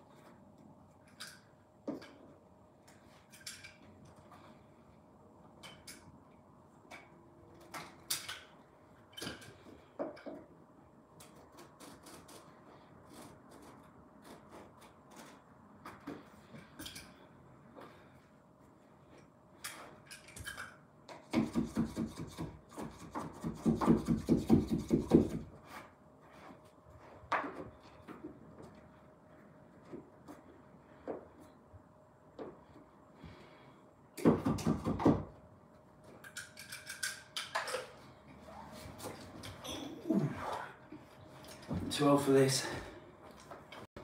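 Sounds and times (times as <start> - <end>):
small clicks and scrapes: 11.2 - 15.5.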